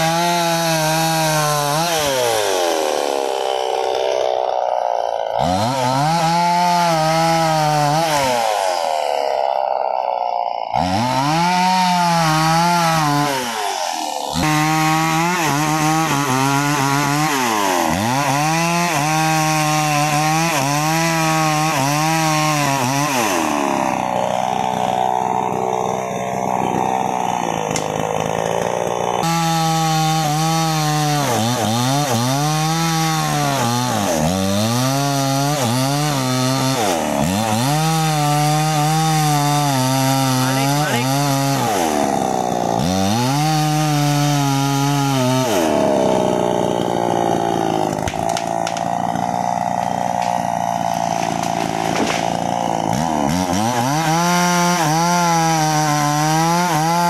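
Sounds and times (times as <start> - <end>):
chainsaw cutting wood: 0.0 - 57.0.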